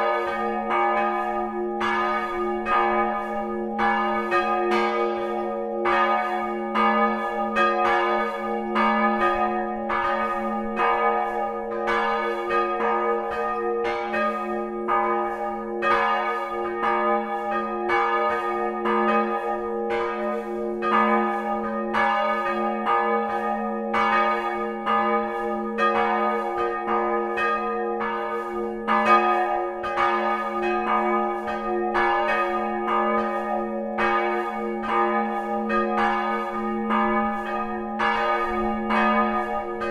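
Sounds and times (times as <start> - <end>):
church bells ringing: 0.0 - 39.9.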